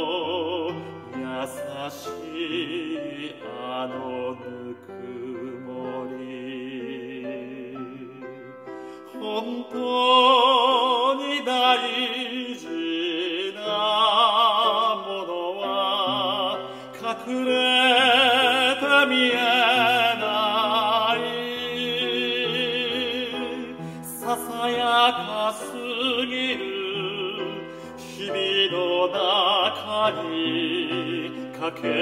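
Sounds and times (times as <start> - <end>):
man singing opera: 0.0 - 32.0
singer breathing: 0.8 - 1.1, 8.6 - 9.2, 16.6 - 17.0, 23.7 - 24.1, 27.6 - 28.0.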